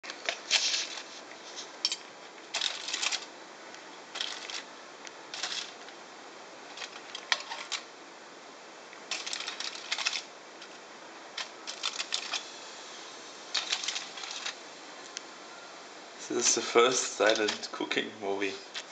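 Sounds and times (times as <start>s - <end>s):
metal cutlery clicking: 1.8s - 3.3s.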